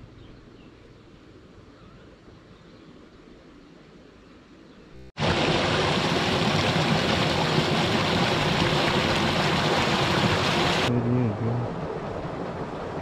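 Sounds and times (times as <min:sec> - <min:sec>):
water pouring and splashing: 0:05.2 - 0:10.9.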